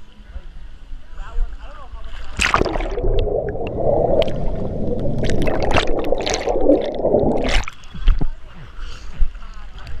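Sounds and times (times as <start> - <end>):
muffled underwater bubbling: 2.4 - 8.3.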